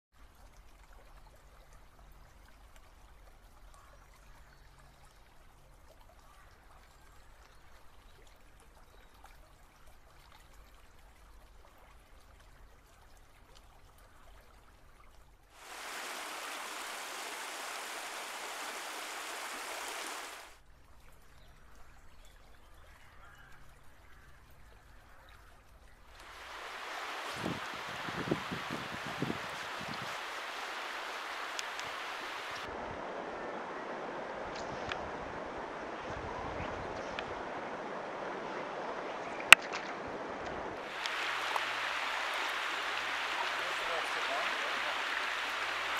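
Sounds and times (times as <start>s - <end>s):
stream water flowing: 0.2s - 21.6s, 26.0s - 45.9s
loud rushing water: 15.6s - 20.6s, 26.1s - 45.9s.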